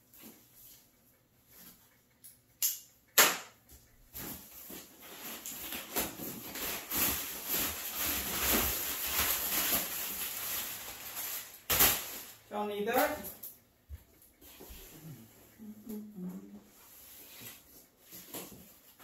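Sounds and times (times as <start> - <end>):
crumpled paper rustling: 4.2 - 13.4.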